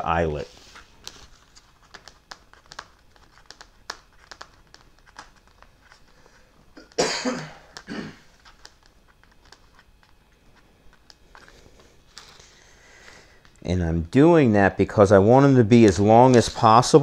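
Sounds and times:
man coughing: 6.8s - 8.3s.

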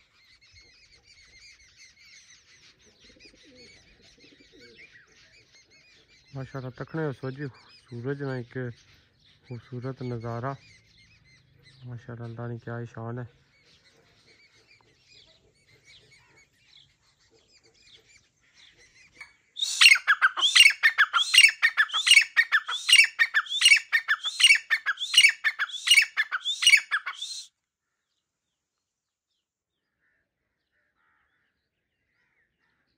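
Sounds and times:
faint bird chirps: 0.0s - 28.9s
sharp repeated bird calls: 13.4s - 27.5s.

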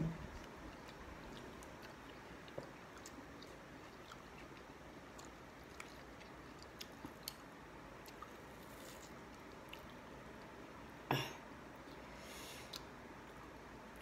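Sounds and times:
chewing mango: 0.3s - 10.6s.

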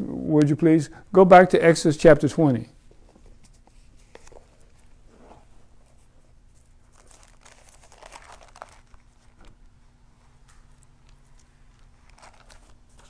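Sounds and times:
thin pages rustling: 2.9s - 9.6s, 11.2s - 13.0s.

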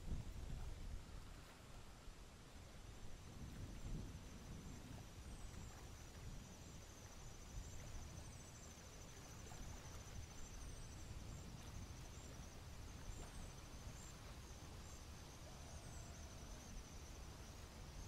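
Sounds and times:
insect trill: 4.3s - 18.0s.

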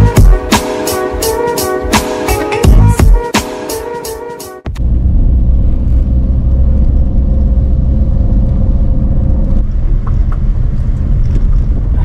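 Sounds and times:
music intro: 0.0s - 8.4s
car engine and road noise: 0.0s - 12.0s.

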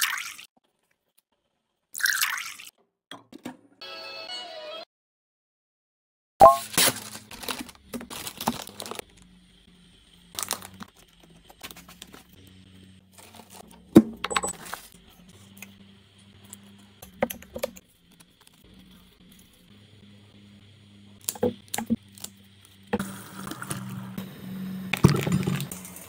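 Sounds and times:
plastic bag crinkling: 6.6s - 9.2s, 10.4s - 12.2s.

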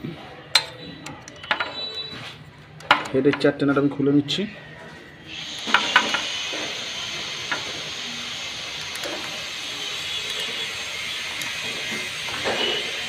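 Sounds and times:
wrench metal clicks: 0.5s - 2.1s.

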